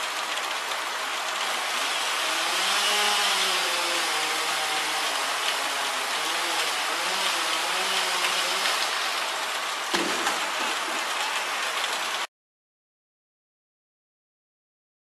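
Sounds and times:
rain hissing: 0.0s - 12.3s
sharp knock: 9.9s - 10.4s.

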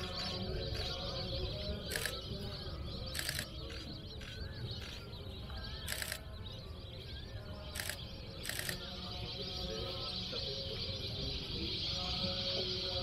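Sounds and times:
faint bird calls: 0.0s - 13.0s
camera shutter bursts: 3.1s - 5.0s, 5.9s - 6.2s, 7.7s - 8.8s.

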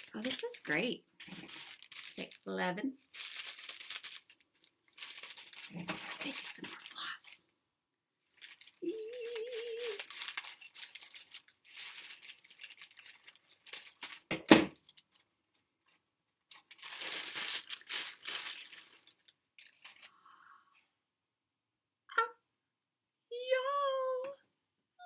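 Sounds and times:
gift wrapping crinkling and tearing: 0.0s - 7.4s, 8.3s - 15.2s, 16.4s - 20.1s.

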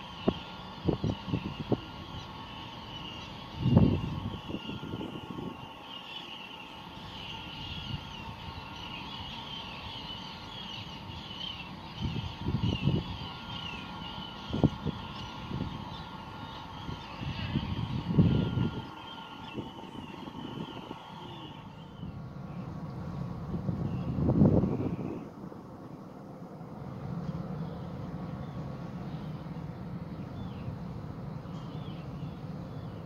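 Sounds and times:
wavering higher chatter: 0.0s - 22.8s
distant ship machinery hum: 0.0s - 33.0s.

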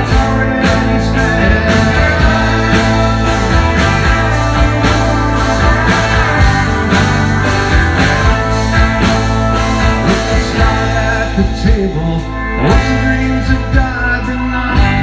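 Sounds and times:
man singing into a microphone: 0.0s - 2.8s, 10.1s - 15.0s
live rock band playing: 0.0s - 15.0s.

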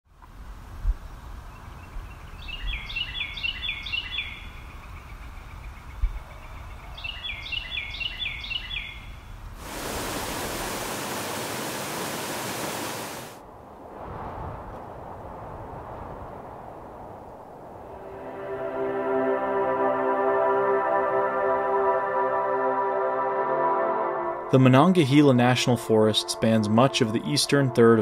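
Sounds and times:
songbird singing: 1.0s - 9.4s, 24.5s - 28.0s
steady rushing hiss: 9.5s - 13.4s.

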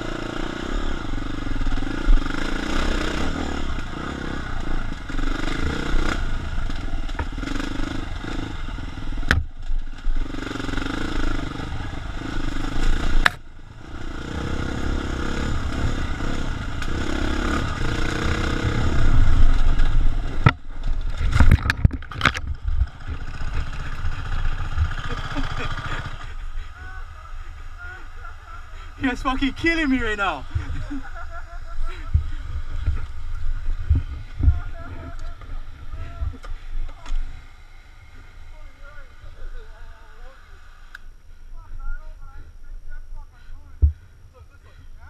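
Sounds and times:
dirt bike engine revving: 0.0s - 41.3s.

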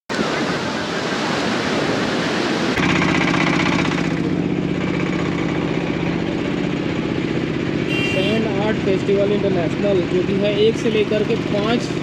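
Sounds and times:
engine idling: 2.8s - 12.0s.

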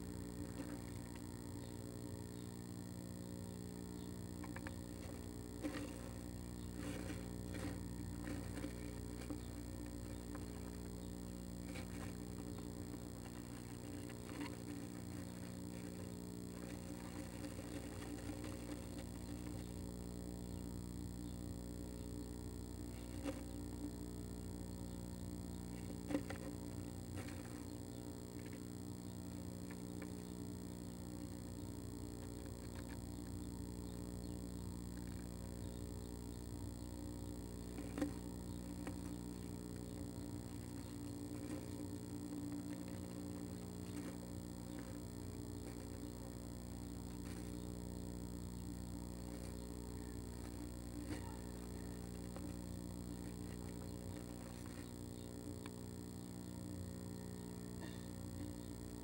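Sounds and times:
steady low hum: 0.0s - 59.0s
bird claws scratching wood shavings: 4.4s - 10.9s, 11.6s - 19.8s, 40.3s - 46.1s.

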